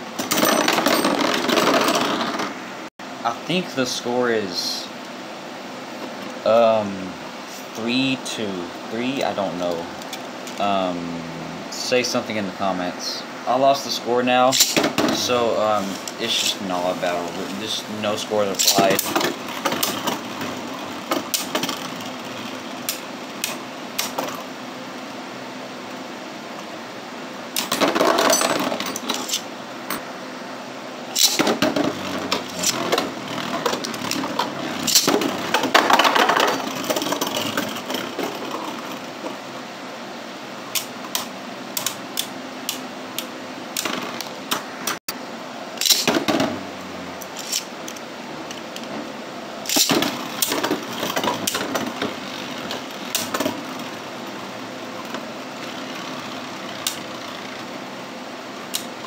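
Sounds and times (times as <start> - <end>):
spinning tops clacking together: 14.5 - 15.3, 16.1 - 24.4, 27.6 - 29.5, 31.1 - 38.9, 45.8 - 46.6, 49.6 - 53.6
spinning tops whirring: 14.5 - 24.5, 27.5 - 30.0, 31.1 - 39.5.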